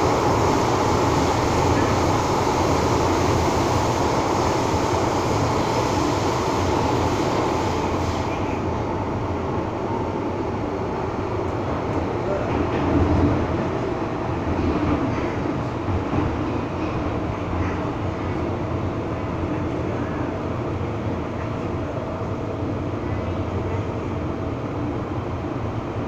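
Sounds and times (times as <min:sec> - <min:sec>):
train wheels rumbling on rail: 0:00.0 - 0:26.0.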